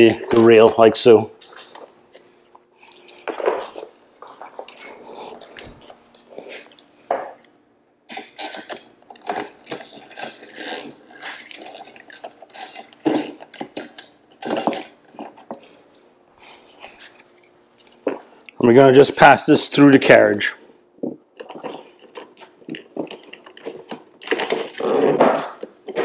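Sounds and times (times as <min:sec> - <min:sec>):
metal parts clinking and rattling: 0:08.1 - 0:15.0.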